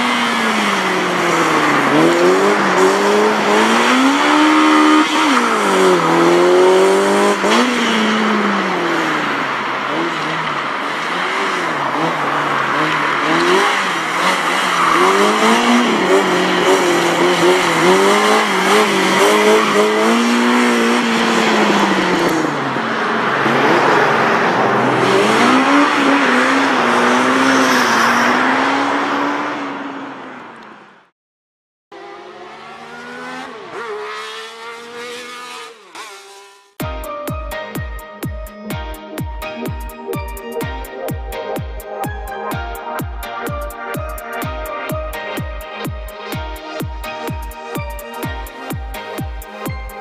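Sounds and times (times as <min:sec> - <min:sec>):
small car engines revving: 0:00.0 - 0:30.9, 0:32.0 - 0:36.8
electronic music: 0:36.8 - 0:50.0.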